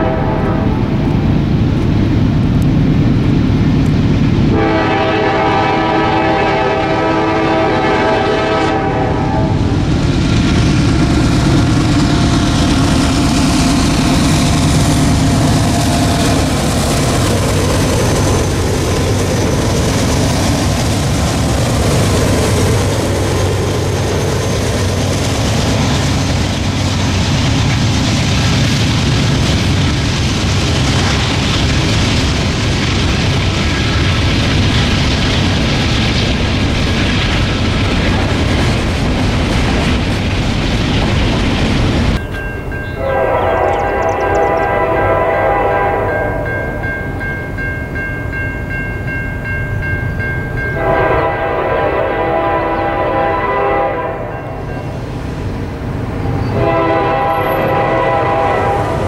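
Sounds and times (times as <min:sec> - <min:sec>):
train horn: 0:00.0 - 0:00.9, 0:04.5 - 0:09.8, 0:42.9 - 0:46.6, 0:50.7 - 0:54.7, 0:56.3 - 0:59.0
diesel locomotives running past: 0:00.0 - 0:59.0
freight cars rumbling and clattering: 0:09.6 - 0:44.8.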